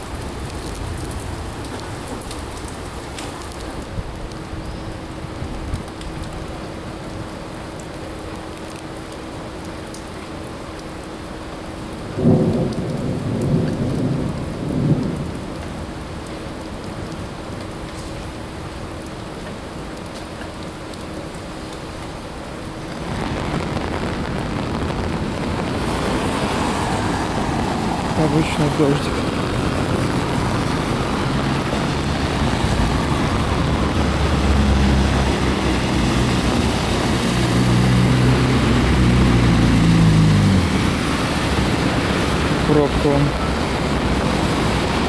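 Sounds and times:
steady rain: 0.0 - 45.0
low rumble of thunder: 12.1 - 16.2.

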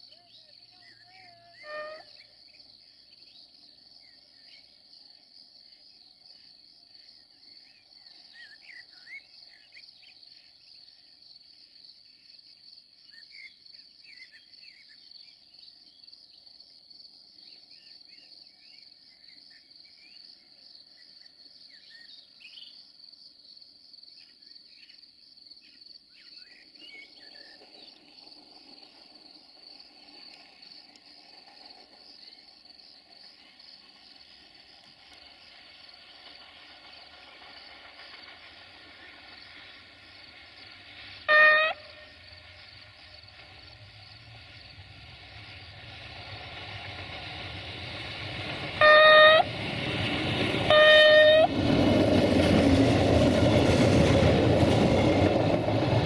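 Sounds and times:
crickets chirring: 0.0 - 56.0
rising call: 48.8 - 49.6, 50.6 - 51.5.

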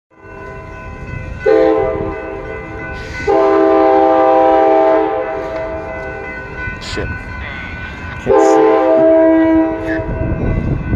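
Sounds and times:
train air horn: 1.5 - 2.1, 3.2 - 5.8, 8.3 - 10.0.

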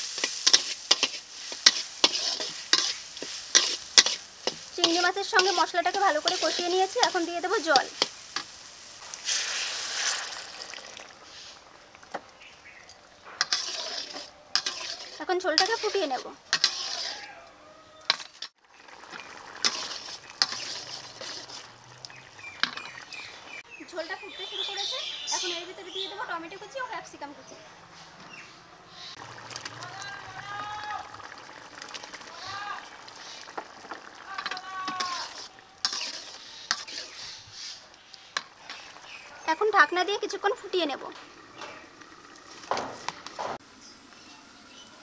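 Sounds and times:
spatula scraping a metal pan: 0.0 - 10.2, 13.3 - 17.4, 18.1 - 18.6, 19.6 - 21.8, 34.4 - 38.9
curry boiling and bubbling: 0.0 - 23.7, 28.9 - 43.7.

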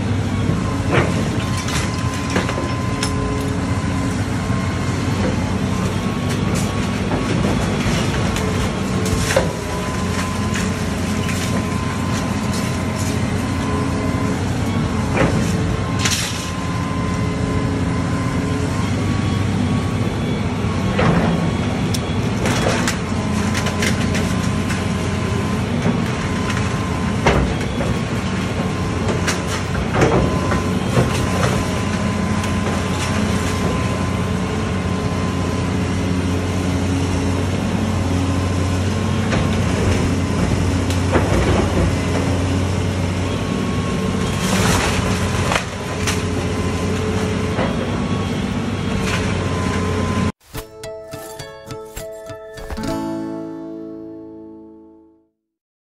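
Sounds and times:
excavator diesel engine running: 0.0 - 54.1
wood breaking and debris crashing: 0.8 - 3.5, 5.6 - 16.8, 22.3 - 35.6, 44.1 - 48.0.

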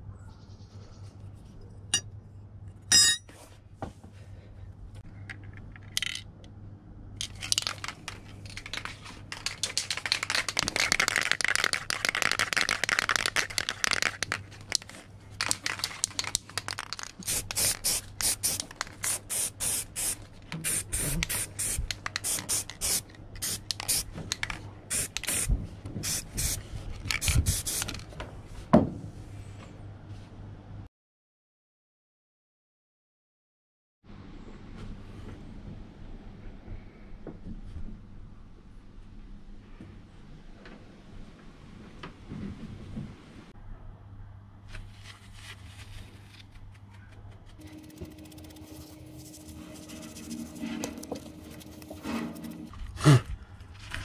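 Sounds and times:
spray paint can hissing: 16.7 - 24.1, 24.9 - 28.0, 47.6 - 52.7.

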